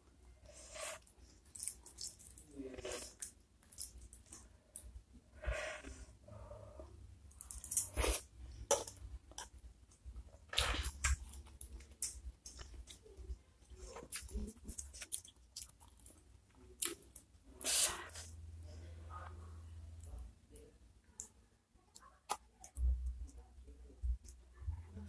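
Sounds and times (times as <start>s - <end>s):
person chewing and slurping soup: 7.3s - 19.4s.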